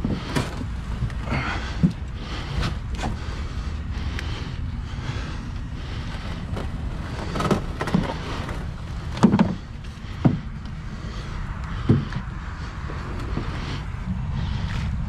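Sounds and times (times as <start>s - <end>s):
low rumble: 0.0s - 15.0s.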